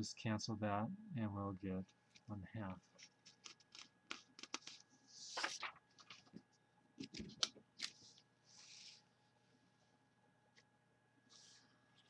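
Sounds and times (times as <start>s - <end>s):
paper swishes: 4.5s - 6.3s.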